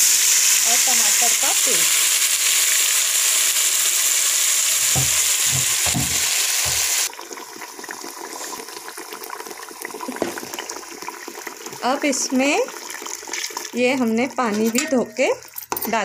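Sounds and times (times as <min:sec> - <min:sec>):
hot oil sizzling loudly: 0:00.0 - 0:15.5
water pouring into pot: 0:00.0 - 0:15.8
spoon knocking pot: 0:04.8 - 0:07.1.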